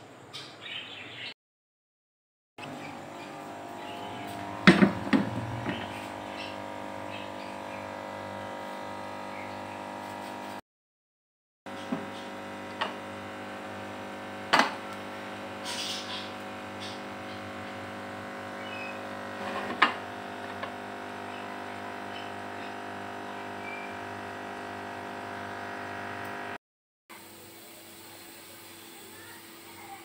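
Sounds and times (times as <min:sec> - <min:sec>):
steady hum: 0:02.6 - 0:10.6.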